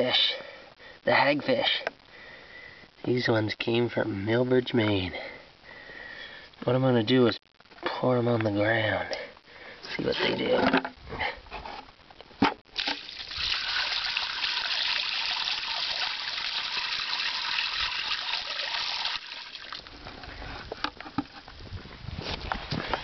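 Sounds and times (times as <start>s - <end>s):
water splashing onto ground: 12.7s - 19.9s.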